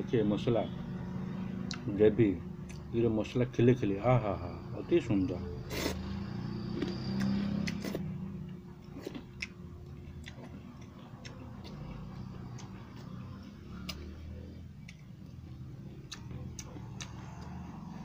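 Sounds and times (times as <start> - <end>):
low steady hum: 0.0 - 18.0
man chewing food: 2.6 - 2.9, 5.6 - 18.0.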